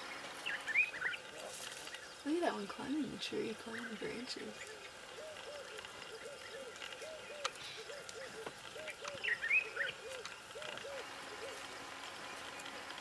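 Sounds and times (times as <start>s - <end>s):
high bird chirps: 0.0s - 2.3s, 3.7s - 11.6s
bird hooting: 3.6s - 12.7s.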